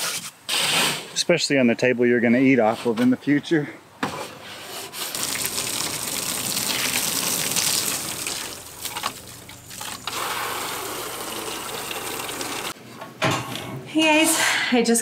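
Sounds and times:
hose spraying water on plastic: 5.0s - 12.8s.

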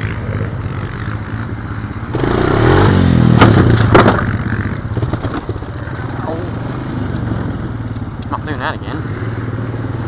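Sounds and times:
atv engine revving: 0.0s - 10.0s
sharp clattering knocks: 3.3s - 5.7s.

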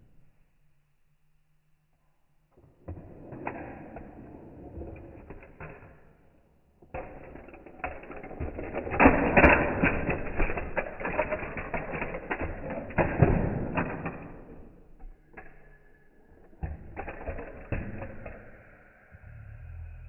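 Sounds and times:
plastic toy track rattling: 6.8s - 18.8s.

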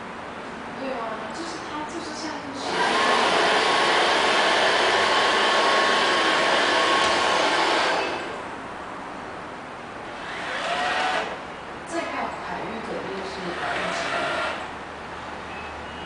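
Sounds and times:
robot vacuum cleaner whirring: 2.6s - 8.4s, 10.1s - 11.4s, 13.4s - 14.7s.

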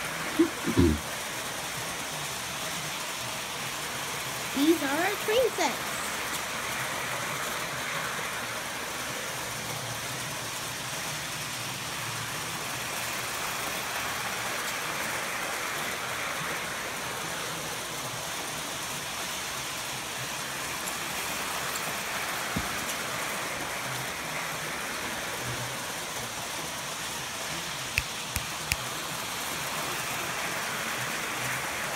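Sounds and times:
model train motors whirring: 0.0s - 31.9s
sharp clicks: 28.0s - 28.8s.

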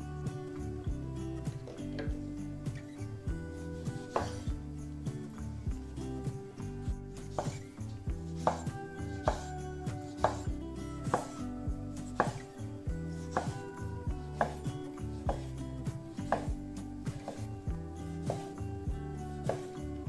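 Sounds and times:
knife slicing tomato: 3.4s - 4.5s, 7.2s - 18.6s, 19.2s - 19.8s
knife knocking on wooden board: 4.0s - 4.5s, 7.3s - 7.6s, 8.4s - 9.6s, 10.2s - 11.4s, 12.2s - 12.5s, 14.4s - 14.7s, 16.2s - 17.5s.

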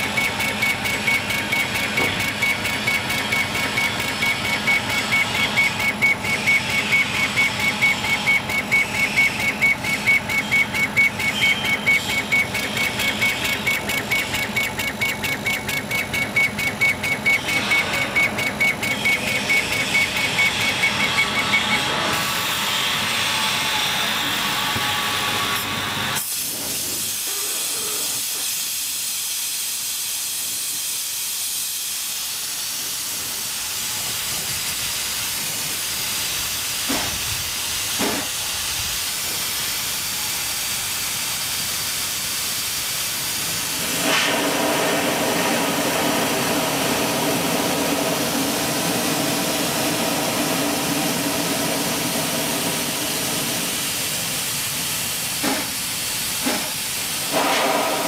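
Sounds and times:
air hissing at laser head: 26.2s - 46.2s, 52.5s - 58.0s.

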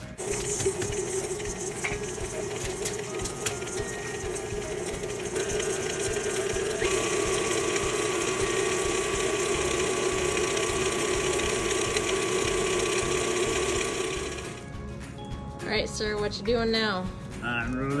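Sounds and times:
stand mixer whirring: 0.0s - 14.6s.

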